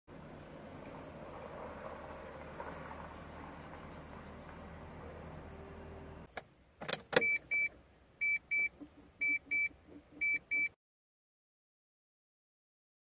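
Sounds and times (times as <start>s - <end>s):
dashboard warning chime beeping: 7.2s - 10.8s.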